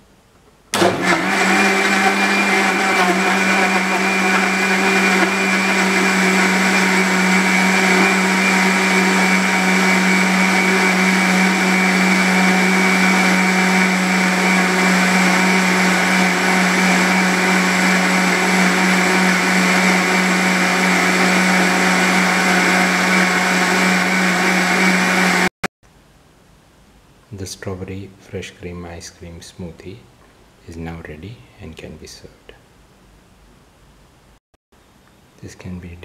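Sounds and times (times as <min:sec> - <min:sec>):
mixer grinder blending liquid: 0:00.8 - 0:25.5.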